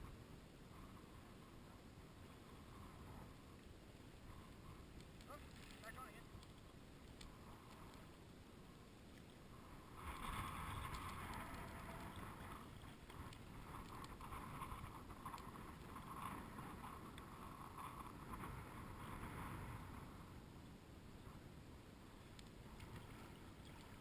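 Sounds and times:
wind on microphone: 9.4s - 24.0s.

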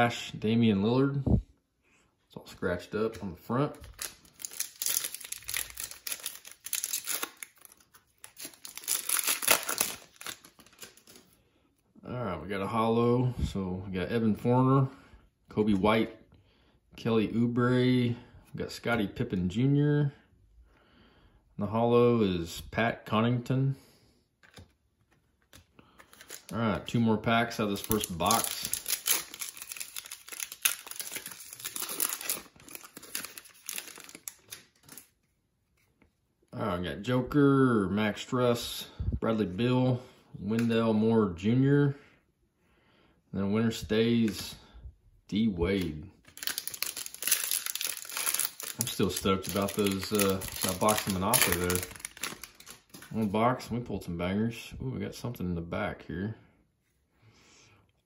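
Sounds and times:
foil wrapper crinkling: 3.8s - 11.3s, 26.0s - 35.1s, 45.8s - 53.3s.

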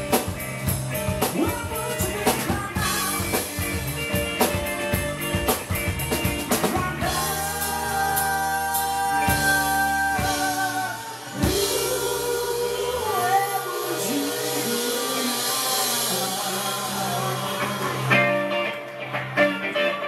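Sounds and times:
drum kit: 0.0s - 20.0s
electric guitar: 0.0s - 20.0s
man singing long notes: 6.6s - 18.2s.

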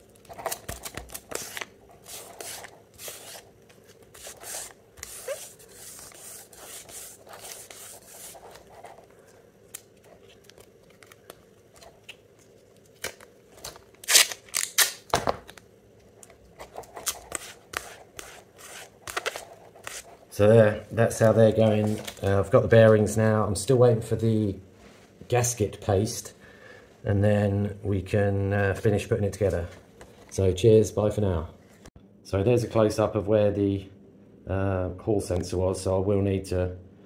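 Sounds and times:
adhesive tape crackling and ripping: 0.1s - 3.5s, 12.8s - 15.6s.

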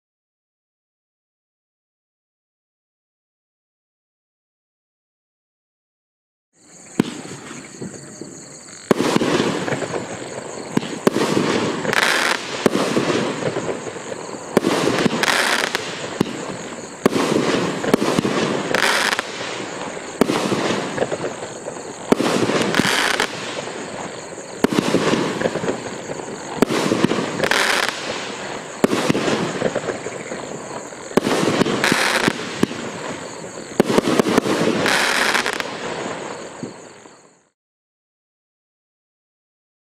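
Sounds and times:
firework shots bursting and crackling: 6.9s - 37.3s.

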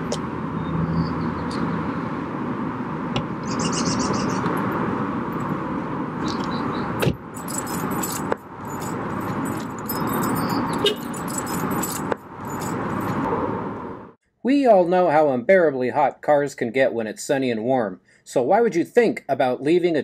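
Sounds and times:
car door shutting: 7.0s - 7.2s.

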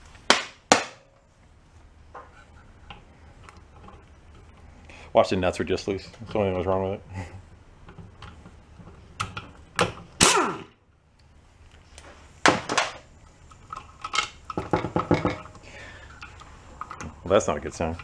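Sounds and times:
metal clanks on steel workbench: 14.6s - 15.5s.

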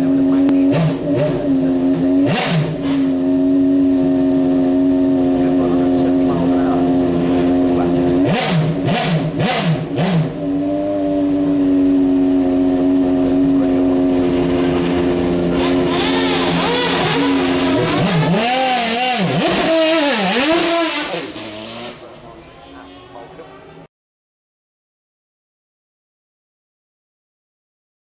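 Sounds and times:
race car engine revving: 0.0s - 22.5s
tyres wheelspin: 15.5s - 22.1s.

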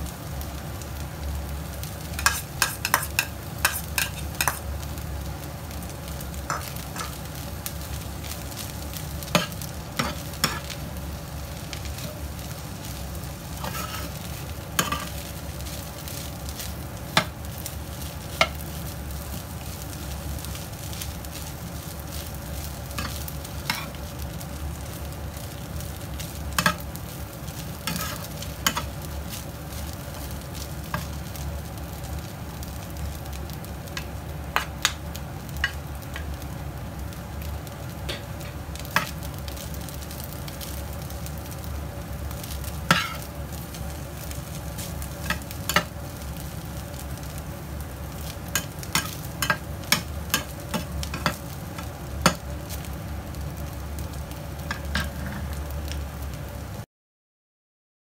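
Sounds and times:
rice sizzling in a frying pan: 0.0s - 56.9s
metal spatula scraping a pan: 2.2s - 4.6s, 9.3s - 10.8s, 13.6s - 15.2s, 27.8s - 28.9s, 42.9s - 43.3s.

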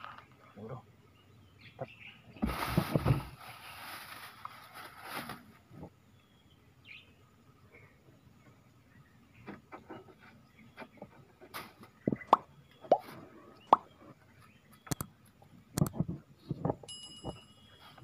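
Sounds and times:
sharp clicks: 14.8s - 15.1s.

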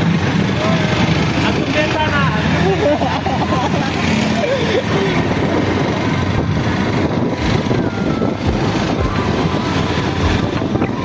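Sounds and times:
motorcycle engine running: 0.0s - 11.0s
road noise: 0.0s - 11.0s
wind on microphone: 4.9s - 11.0s.

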